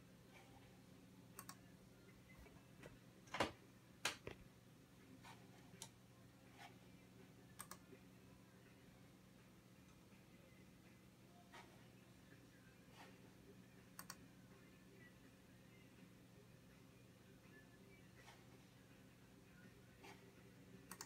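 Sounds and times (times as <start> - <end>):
faint steady hum: 0.0 - 21.0
computer mouse clicks: 1.4 - 1.6, 7.6 - 7.8, 14.0 - 14.2.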